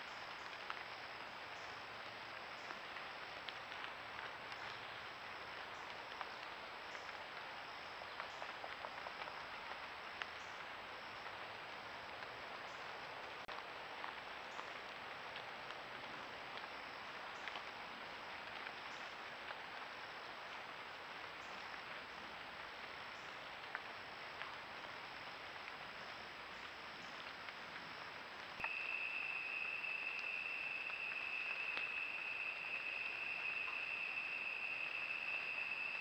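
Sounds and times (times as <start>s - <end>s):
high-pitched insect trill: 28.6s - 36.0s
night insects hissing: 28.6s - 36.0s.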